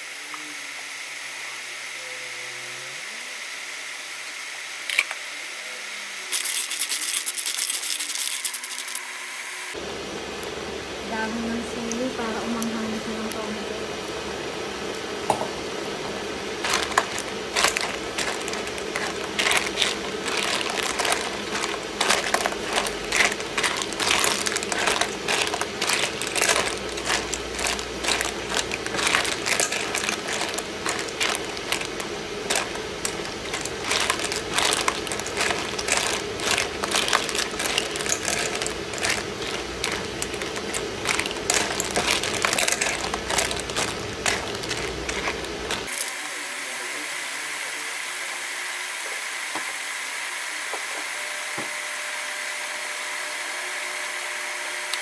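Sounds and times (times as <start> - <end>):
clams clattering in a pan: 6.3 - 8.9, 16.6 - 45.9
steady low hum: 9.7 - 45.9.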